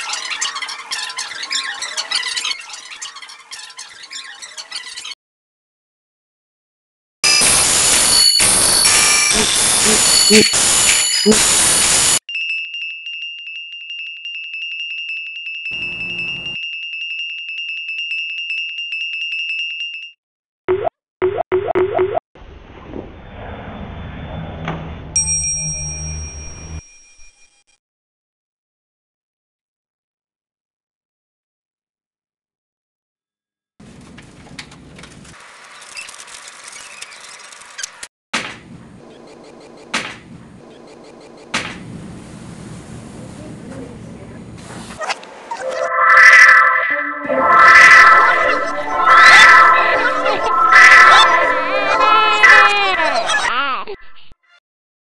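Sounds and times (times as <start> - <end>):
rapid electronic beeping: 7.3 - 12.2, 45.6 - 52.4.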